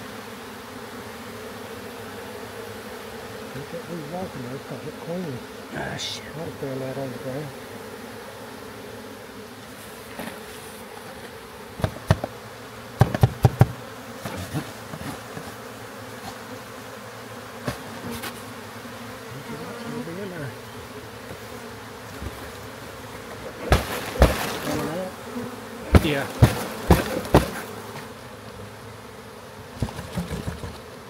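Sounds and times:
bee swarm buzzing: 0.0 - 31.0
knocks on cardboard box: 11.8 - 12.4, 13.0 - 15.5, 23.7 - 24.8, 25.9 - 27.7, 29.8 - 30.9.

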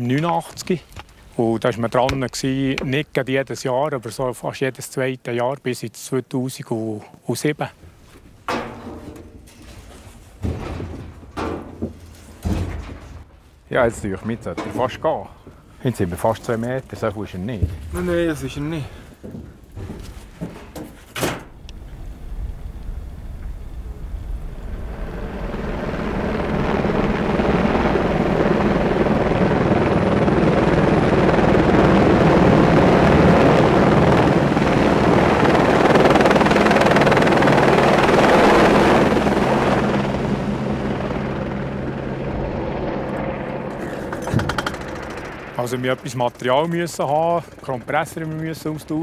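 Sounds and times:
helicopter rotor and engine: 23.5 - 49.0.

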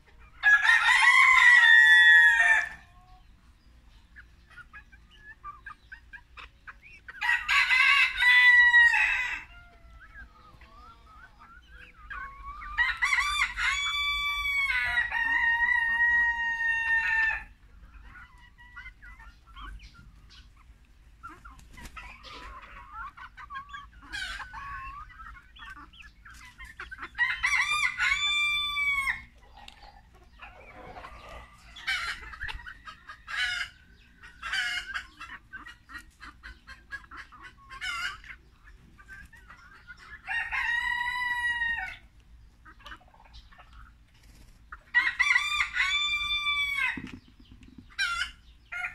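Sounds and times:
hens clucking: 0.0 - 48.9
rooster crowing: 0.4 - 2.8, 7.2 - 9.6, 27.2 - 29.2, 45.0 - 47.0.

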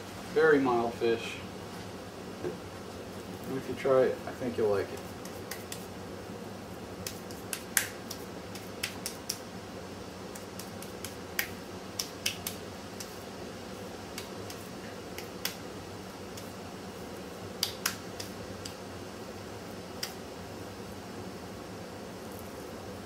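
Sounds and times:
wet clicks of kneading meat: 4.9 - 5.9, 7.0 - 9.4, 10.3 - 13.2, 14.1 - 15.6, 17.6 - 18.8.

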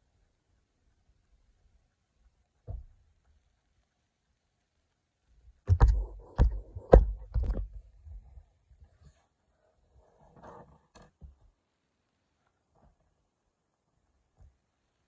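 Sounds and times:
sharp knocks: 5.7 - 7.8.

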